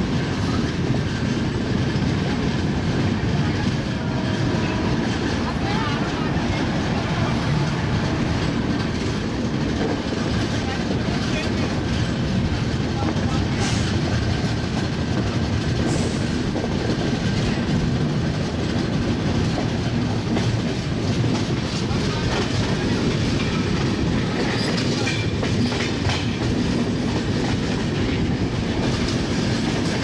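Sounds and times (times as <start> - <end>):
train rumbling on track: 0.0 - 30.0
wheels clickety-clack over rail joints: 0.0 - 30.0.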